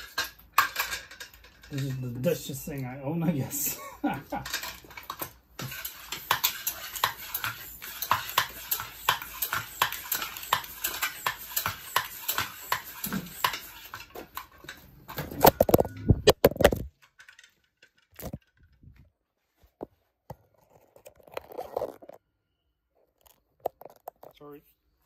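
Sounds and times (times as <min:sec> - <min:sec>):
floor pump strokes: 0:04.3 - 0:16.2.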